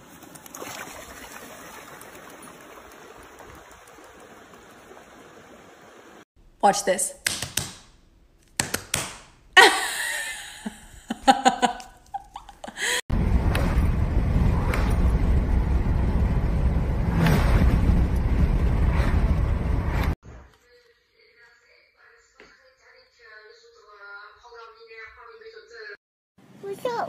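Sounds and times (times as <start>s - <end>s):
woman speaking: 6.6s - 7.2s, 20.6s - 26.0s
wind and road noise in car: 13.1s - 20.2s.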